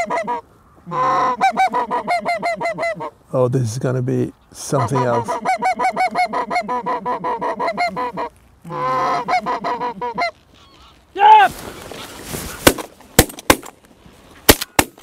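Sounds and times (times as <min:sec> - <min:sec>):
geese honking overhead: 0:00.0 - 0:03.2, 0:04.6 - 0:11.0
person shouting: 0:11.2 - 0:11.5.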